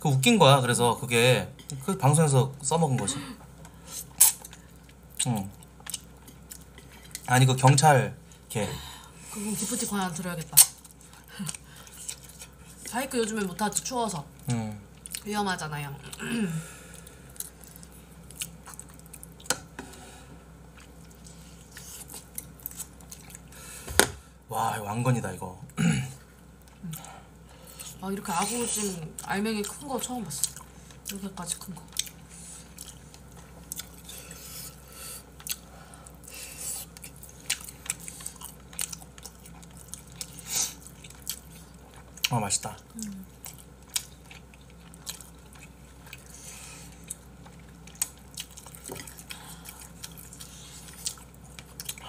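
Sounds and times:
people chewing food: 0.1s - 52.0s.

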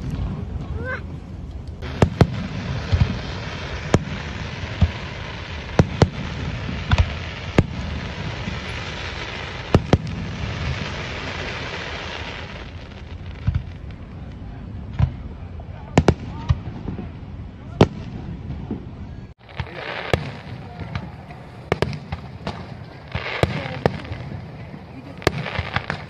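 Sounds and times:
fireworks bangs: 0.0s - 26.0s
fireworks hiss: 1.8s - 14.0s, 19.0s - 26.0s.

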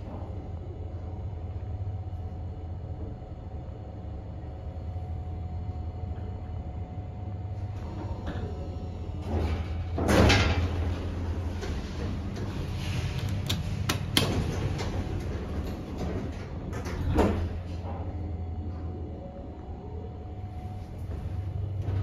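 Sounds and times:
low hum of lift: 0.0s - 22.0s
lift doors sliding: 7.7s - 18.3s.

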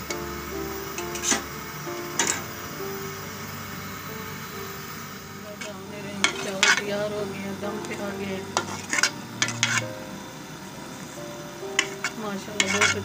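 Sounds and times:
metal spoon scraping pot: 1.0s - 1.5s, 2.2s - 2.4s, 5.6s - 7.0s, 7.9s - 9.9s, 11.8s - 13.0s.

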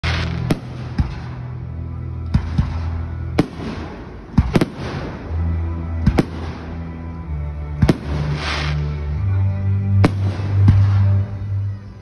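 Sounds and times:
fireworks bangs: 0.0s - 1.6s.

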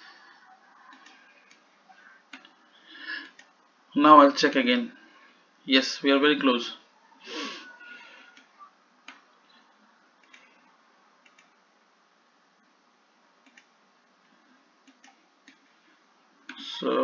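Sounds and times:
computer mouse clicks: 0.9s - 1.6s, 3.2s - 3.6s, 8.4s - 9.6s, 10.2s - 10.6s, 11.2s - 11.6s, 13.4s - 13.7s, 14.8s - 15.7s.

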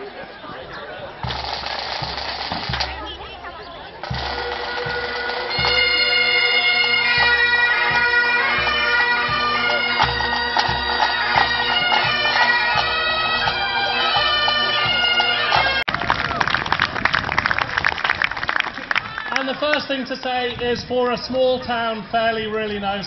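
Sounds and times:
drum beats: 1.2s - 16.4s
bagpipe drones: 1.3s - 15.9s
bagpipe chanter melody: 4.0s - 15.9s.

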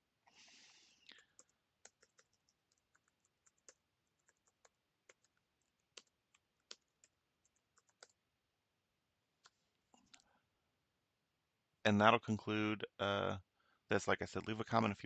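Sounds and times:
computer keyboard keystrokes: 1.4s - 8.2s.

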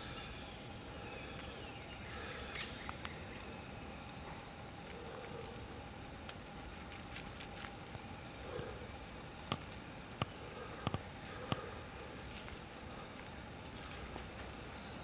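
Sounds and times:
outdoor background noise: 0.0s - 15.0s.

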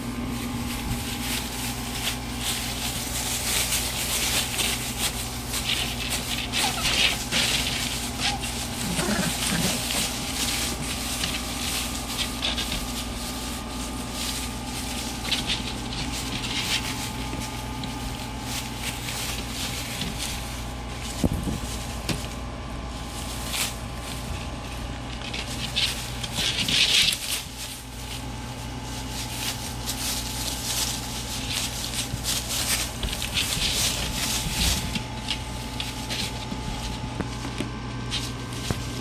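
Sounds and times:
shredded paper rustling: 0.0s - 39.0s
steady low hum: 0.0s - 39.0s.

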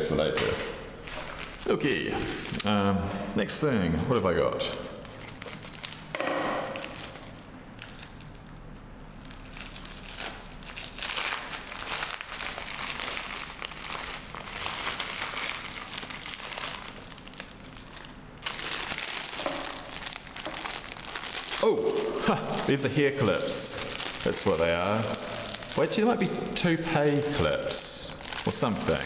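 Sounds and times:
packaging crinkling: 1.0s - 2.7s, 4.6s - 29.0s.

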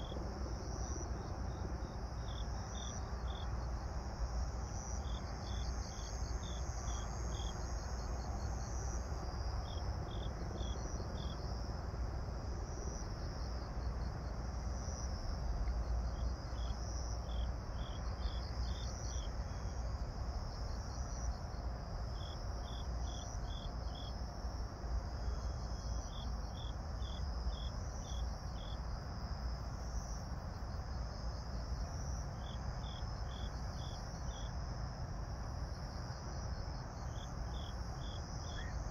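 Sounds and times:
cricket chirping: 0.0s - 38.9s
high-pitched insect trill: 16.1s - 38.9s.

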